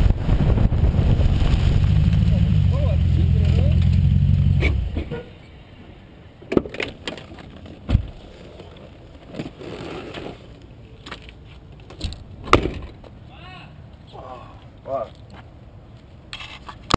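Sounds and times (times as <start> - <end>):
car engine idling: 1.8 - 5.0.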